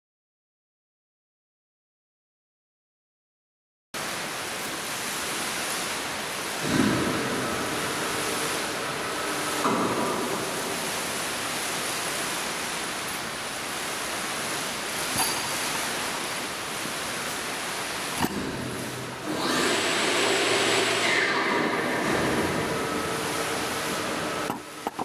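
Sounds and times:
room noise hiss: 0:04.0 - 0:25.0
faint hum: 0:06.5 - 0:19.3.

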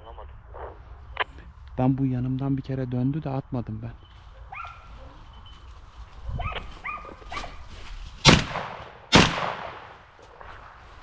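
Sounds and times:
dogs barking: 0:04.3 - 0:05.2, 0:06.3 - 0:07.7
shotgun shots echoing: 0:08.2 - 0:10.1.

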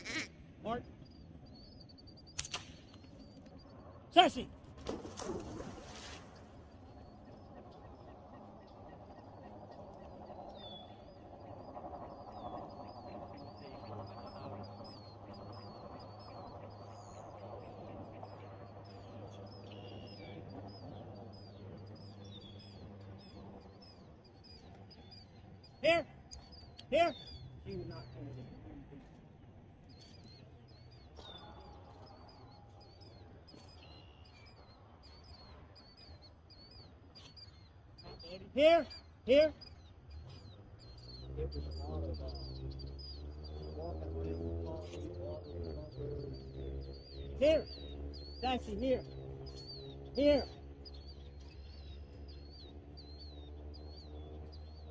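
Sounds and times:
duck call quacks: 0:00.0 - 0:00.4
high chirping: 0:00.0 - 0:05.2, 0:05.8 - 0:54.9.

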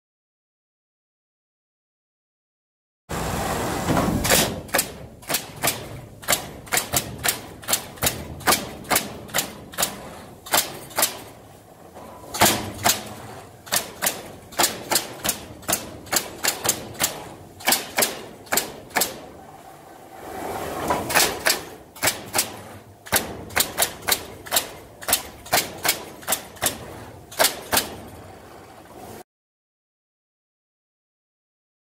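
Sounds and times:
pneumatic nail guns firing: 0:03.8 - 0:11.4, 0:12.3 - 0:19.3, 0:21.0 - 0:28.1.

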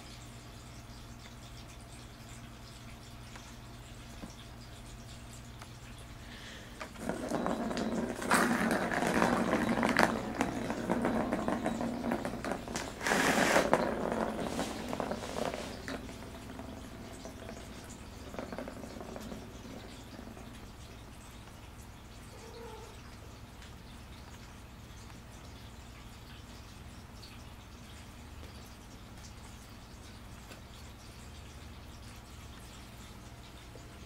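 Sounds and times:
plastic ball rolling in track: 0:06.8 - 0:20.9.

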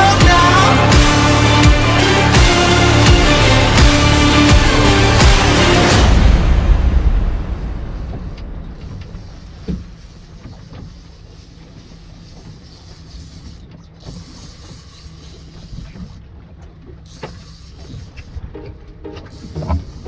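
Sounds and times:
outboard motor running: 0:07.8 - 0:20.0
fishing reel whirring and clicking: 0:09.0 - 0:20.0.

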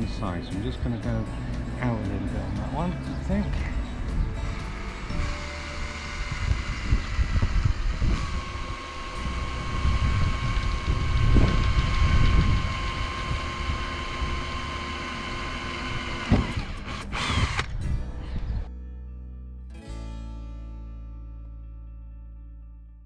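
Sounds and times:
wind rumble on microphone: 0:03.5 - 0:14.7, 0:15.9 - 0:18.7
cordless drill drilling metal: 0:05.1 - 0:17.8.

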